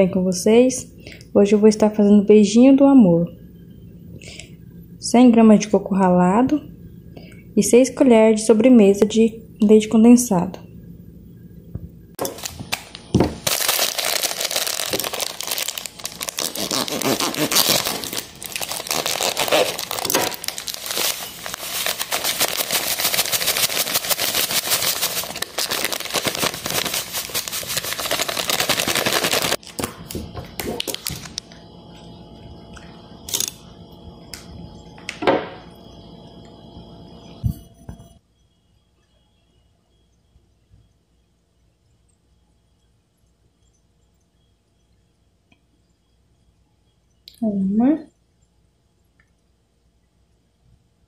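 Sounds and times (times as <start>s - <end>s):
plastic bag crinkling: 12.2s - 30.0s, 30.8s - 31.4s.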